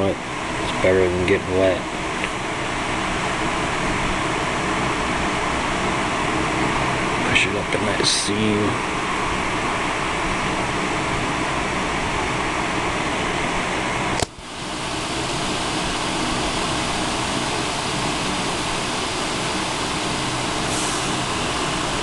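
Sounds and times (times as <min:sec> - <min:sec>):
electric fan running: 0:00.0 - 0:22.0
fan switch click: 0:14.2 - 0:14.4.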